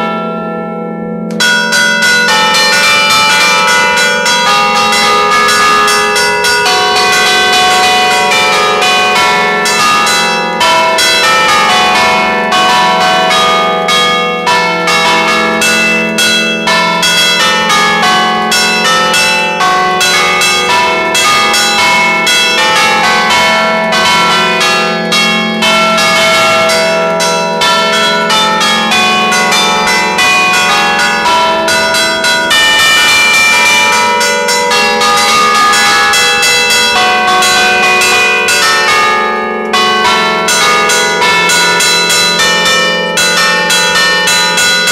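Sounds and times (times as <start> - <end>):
church bells ringing: 0.0 - 44.9.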